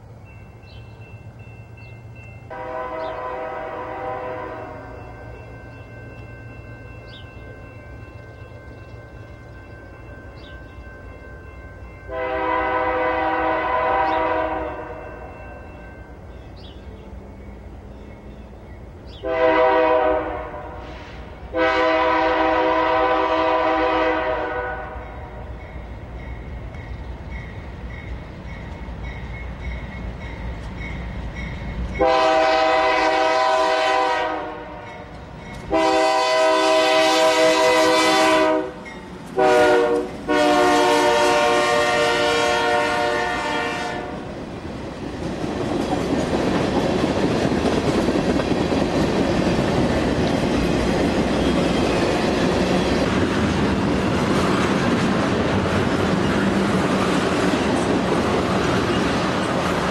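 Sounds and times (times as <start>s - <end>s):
train rumble: 0.0s - 59.9s
locomotive air horn blasts: 2.5s - 5.0s, 12.1s - 15.4s, 19.2s - 25.4s, 32.0s - 35.1s, 35.7s - 44.2s.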